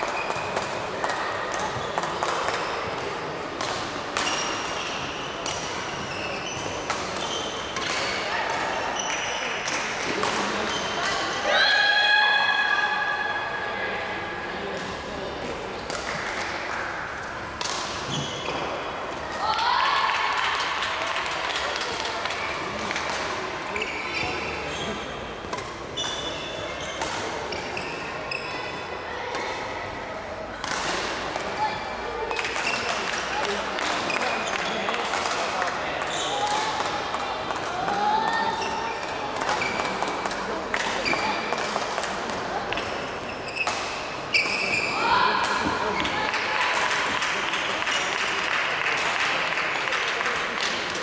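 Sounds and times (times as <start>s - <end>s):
shoes squeaking on court floor: 0.0s - 3.1s, 4.1s - 8.3s, 18.0s - 18.9s, 23.7s - 28.9s, 42.8s - 45.0s
racket hitting shuttlecock: 25.4s - 26.3s, 26.9s - 27.7s, 30.6s - 31.6s.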